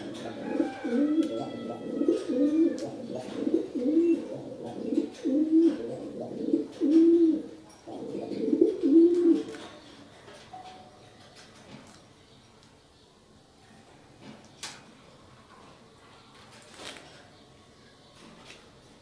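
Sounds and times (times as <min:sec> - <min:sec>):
pigeon cooing: 0:00.0 - 0:09.7.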